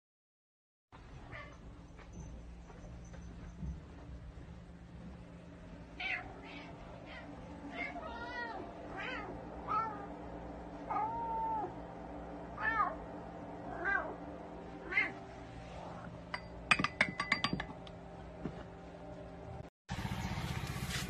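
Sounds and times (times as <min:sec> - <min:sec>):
cat meowing: 0:06.0 - 0:10.1, 0:10.9 - 0:11.7, 0:12.6 - 0:13.0, 0:14.8 - 0:15.2.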